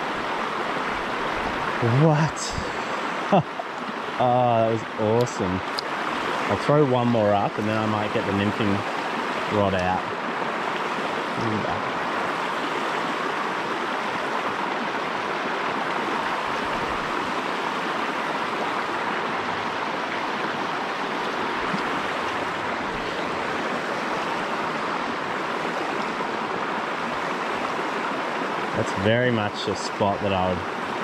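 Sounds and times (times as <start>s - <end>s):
river rushing over rocks: 0.0s - 31.0s.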